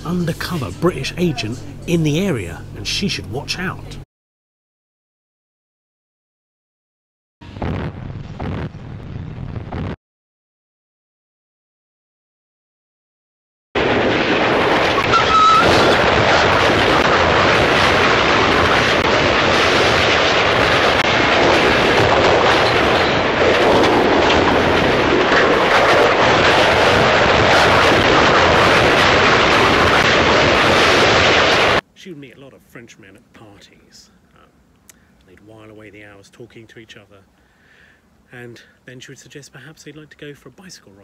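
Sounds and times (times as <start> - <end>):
dense rush of train noise: 0.0 - 3.2, 14.5 - 31.8
high whistle-like tone: 14.9 - 15.9.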